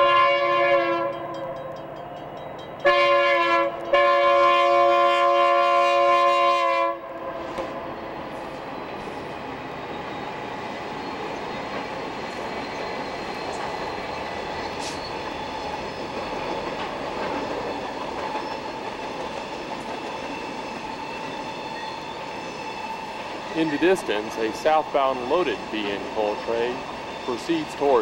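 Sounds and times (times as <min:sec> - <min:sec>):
locomotive air horn: 0:00.0 - 0:01.6, 0:02.8 - 0:07.5
train wheels rolling on rail: 0:07.2 - 0:28.0.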